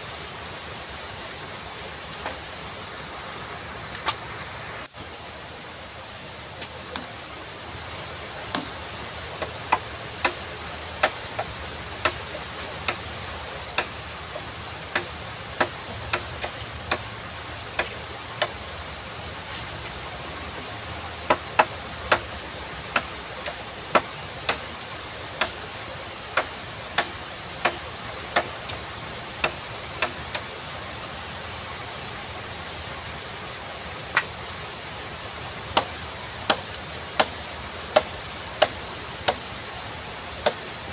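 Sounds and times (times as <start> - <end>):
high-pitched insect drone: 0.0 - 5.0, 5.6 - 33.8, 34.7 - 40.9
machete chopping bamboo: 8.5 - 13.1, 13.7 - 17.1, 17.7 - 18.6, 21.2 - 24.8, 25.4 - 28.8, 29.4 - 30.5, 35.7 - 39.5, 40.4 - 40.7.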